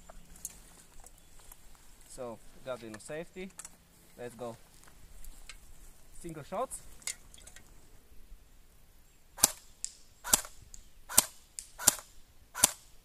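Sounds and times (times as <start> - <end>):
airsoft rifle single shots: 9.4 - 12.9.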